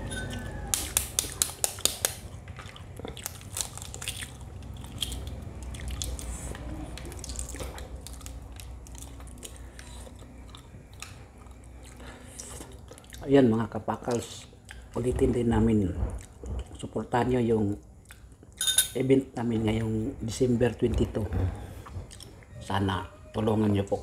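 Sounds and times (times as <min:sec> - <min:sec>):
eggshell crackling: 0:00.3 - 0:15.1.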